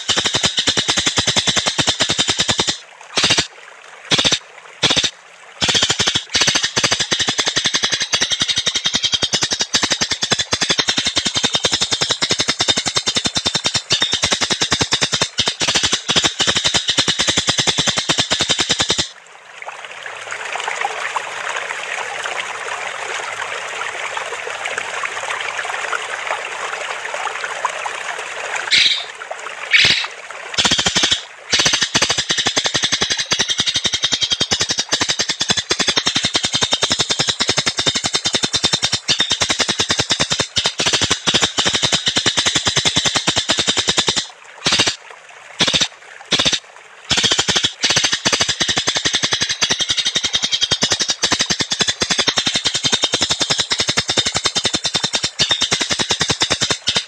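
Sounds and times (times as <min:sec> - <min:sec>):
rapid rattling bird trill: 0:00.0 - 0:03.5, 0:04.1 - 0:19.1, 0:28.7 - 0:29.1, 0:29.7 - 0:45.0, 0:45.6 - 0:57.0.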